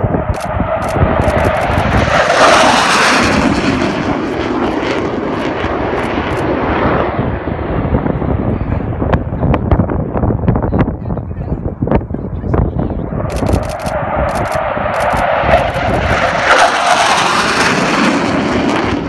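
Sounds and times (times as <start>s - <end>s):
jet flying past low: 0.0s - 10.4s, 11.8s - 19.0s.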